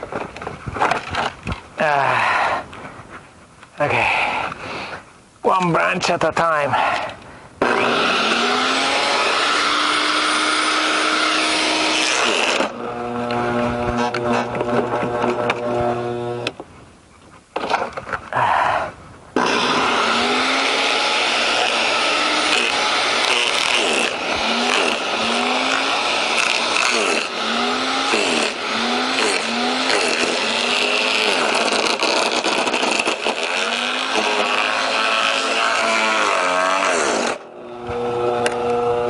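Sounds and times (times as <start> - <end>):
garden shredder grinding bamboo: 6.8 - 16.6, 19.4 - 39.0
shredder motor humming: 7.6 - 16.5, 19.4 - 39.0.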